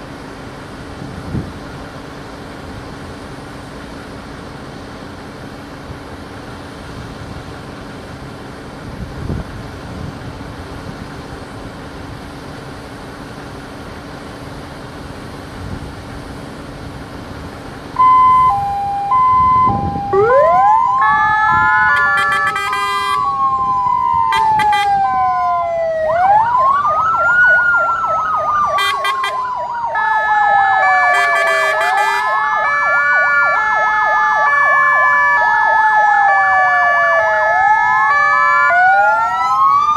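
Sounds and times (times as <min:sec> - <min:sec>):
fire engines idling: 0:00.0 - 0:39.9
two-tone siren: 0:18.0 - 0:39.9
wailing sirens: 0:18.0 - 0:39.9.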